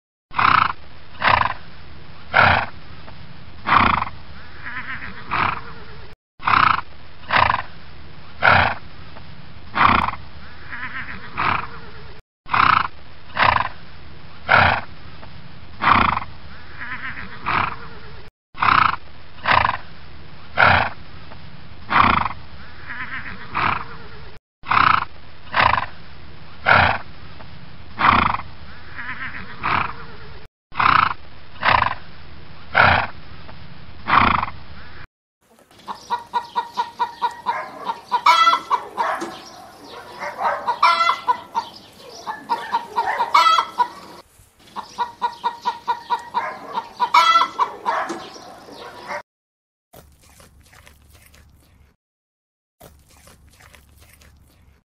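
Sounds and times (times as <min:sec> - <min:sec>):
chickens clucking: 0:35.5 - 0:49.2
horse calls: 0:35.5 - 0:49.2.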